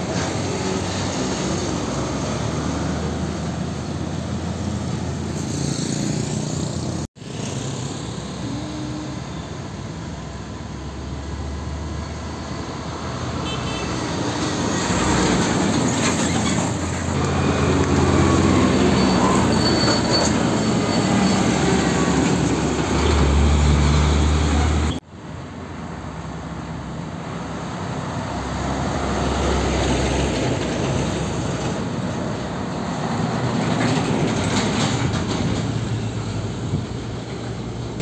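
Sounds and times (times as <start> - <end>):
diesel truck engine: 0.0 - 38.0
trucks rattling: 14.0 - 25.0, 29.2 - 38.0
forklift engine driving past: 14.1 - 25.0.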